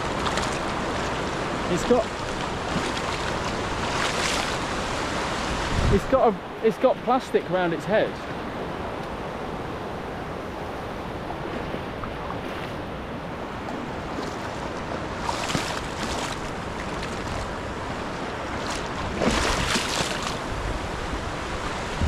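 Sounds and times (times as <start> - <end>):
sea waves washing ashore: 0.0 - 22.0
wind on microphone: 2.6 - 6.2, 19.0 - 22.0.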